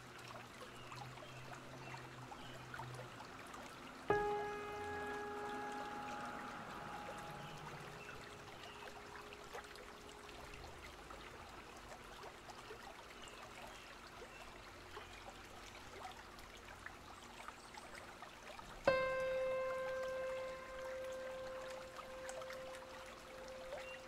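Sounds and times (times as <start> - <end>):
water drips and splashes: 0.0 - 24.0
water trickling and lapping: 0.0 - 24.0
held music chord: 4.1 - 10.2, 18.9 - 24.0.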